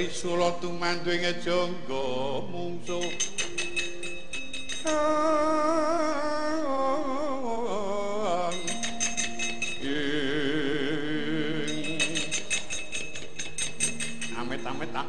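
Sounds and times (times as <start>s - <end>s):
wavering singing voice: 0.0s - 15.0s
metallophone tones: 2.8s - 15.0s
clattering metal plates: 2.9s - 5.0s, 8.5s - 9.9s, 11.5s - 15.0s
gamelan music: 2.9s - 6.6s, 8.4s - 15.0s.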